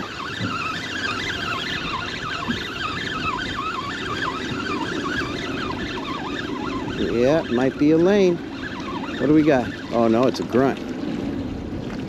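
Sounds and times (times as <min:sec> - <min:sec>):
fishing reel gear whine: 0:00.0 - 0:11.8
water noise: 0:00.0 - 0:12.0
wind: 0:00.0 - 0:12.0.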